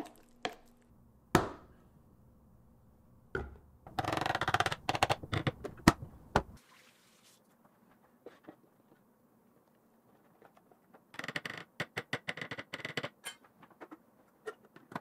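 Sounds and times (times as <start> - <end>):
spoon scraping plastic container: 3.4 - 6.6.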